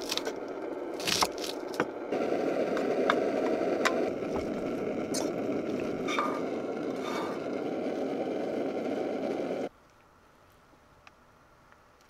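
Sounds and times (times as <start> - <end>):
egg frying in a pan: 0.0 - 9.7
spatula scraping a pan: 6.0 - 7.4.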